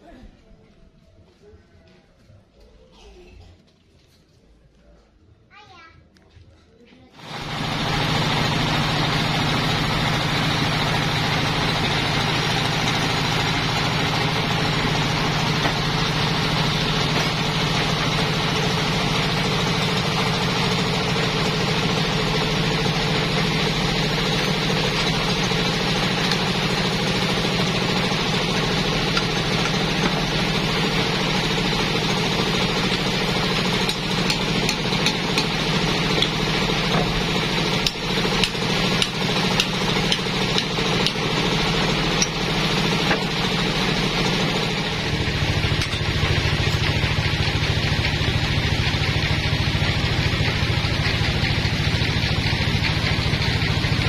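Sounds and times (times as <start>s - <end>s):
band saw machinery humming: 7.2s - 54.0s
knocks and clicks of clamps: 33.8s - 37.2s, 37.8s - 41.4s.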